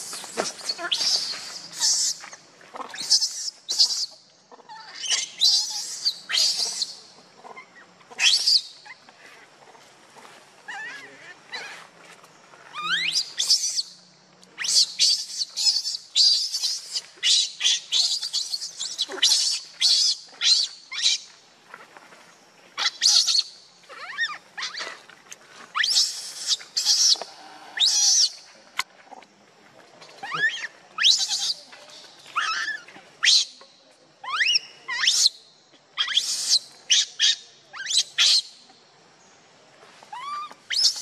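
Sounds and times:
baby monkey screaming: 0:00.4 - 0:09.0, 0:10.7 - 0:11.8, 0:12.7 - 0:13.9, 0:14.6 - 0:21.2, 0:22.8 - 0:24.8, 0:25.8 - 0:27.2, 0:27.8 - 0:28.4, 0:30.2 - 0:31.6, 0:32.4 - 0:33.5, 0:34.2 - 0:35.3, 0:36.0 - 0:38.5, 0:40.1 - 0:41.0.

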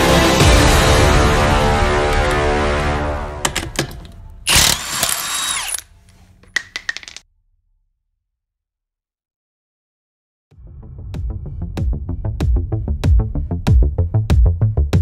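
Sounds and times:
background music: 0:00.0 - 0:05.7, 0:10.6 - 0:15.0
impact wrench running: 0:03.5 - 0:07.2
sharp clicks: 0:03.5 - 0:07.2.

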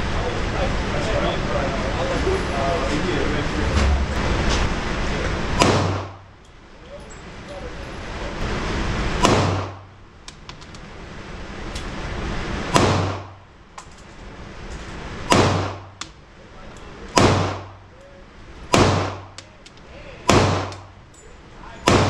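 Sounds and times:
pistol shots: 0:05.6 - 0:06.2, 0:09.2 - 0:09.9, 0:12.7 - 0:13.4, 0:15.3 - 0:16.0, 0:17.1 - 0:17.8, 0:18.7 - 0:19.4, 0:20.2 - 0:21.0.

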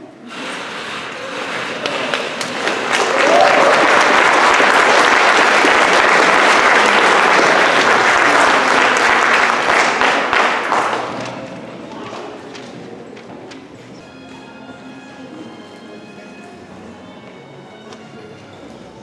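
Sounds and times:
audience applauding: 0:01.3 - 0:11.5.

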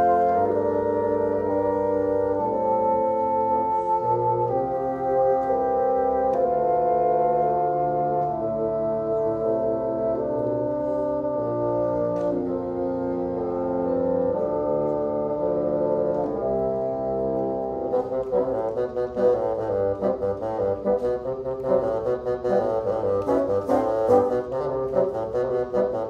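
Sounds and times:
bassoon quartet playing chords: 0:00.0 - 0:26.0.

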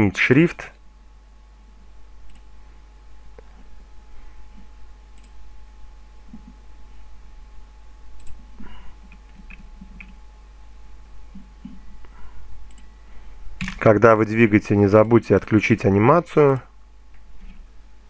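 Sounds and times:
faint electrical hum: 0:00.0 - 0:18.0
computer mouse clicks: 0:02.3 - 0:02.5, 0:05.1 - 0:05.4, 0:08.2 - 0:08.4, 0:09.1 - 0:10.2, 0:12.7 - 0:12.9.

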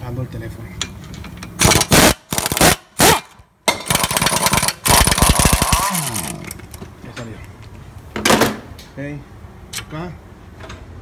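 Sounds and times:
impact wrench hammering bolts: 0:00.8 - 0:06.6.

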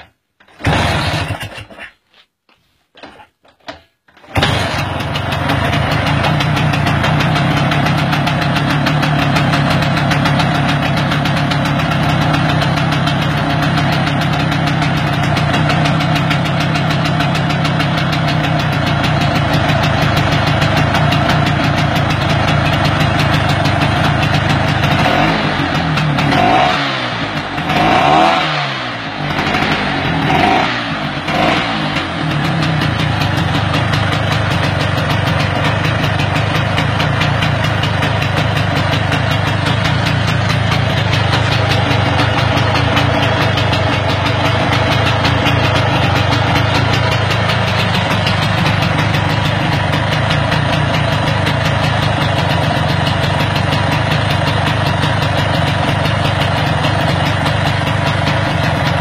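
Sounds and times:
scooter engine running and revving: 0:00.6 - 0:01.6, 0:04.4 - 0:59.0.

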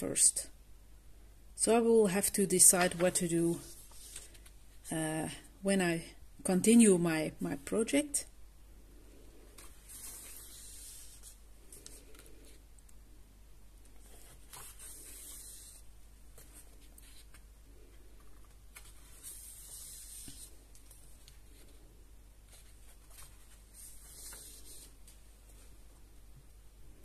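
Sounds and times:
paper pages turning: 0:02.7 - 0:04.6, 0:09.6 - 0:12.6, 0:13.9 - 0:17.5, 0:18.2 - 0:21.8, 0:22.5 - 0:25.2.

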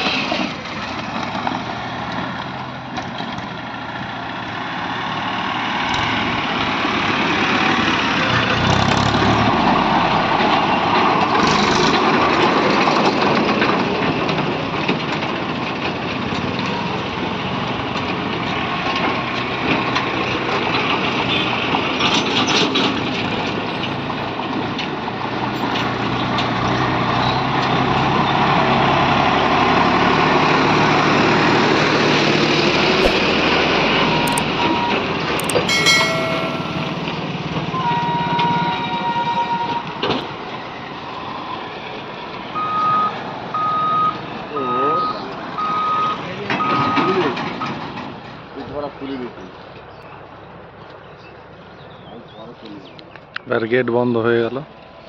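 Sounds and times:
motorcycle: 0:00.0 - 0:36.8
diesel tractor engine: 0:00.0 - 0:50.8
road traffic passing: 0:00.0 - 0:55.0.

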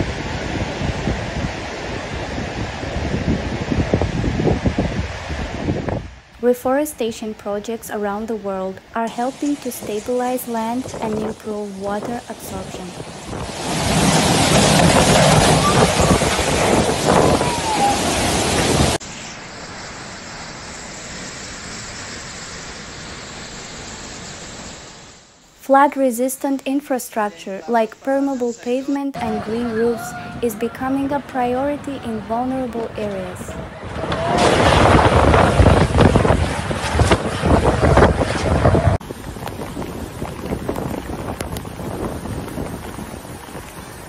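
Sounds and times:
wind buffeting microphone: 0:00.0 - 0:06.3, 0:09.1 - 0:19.0, 0:29.2 - 0:44.0
flood torrent rushing: 0:00.0 - 0:07.4, 0:08.8 - 0:19.0, 0:29.2 - 0:44.0.

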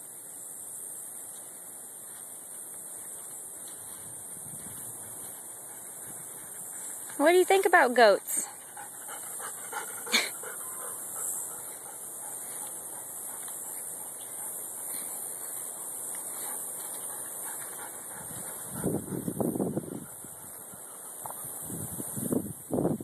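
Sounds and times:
wind on microphone: 0:04.0 - 0:05.4, 0:18.1 - 0:23.0.

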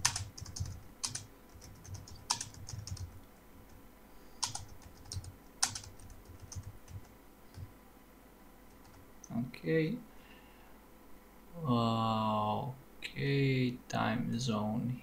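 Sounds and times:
typing on computer keyboard: 0:00.0 - 0:03.2, 0:04.4 - 0:07.7, 0:08.7 - 0:09.0.

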